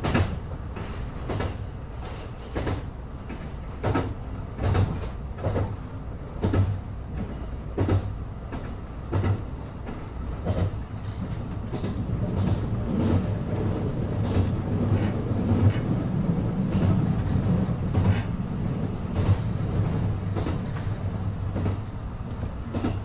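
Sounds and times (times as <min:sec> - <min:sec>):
train rumbling: 0:00.0 - 0:23.0
wheels clicking over rail joints: 0:00.0 - 0:23.0.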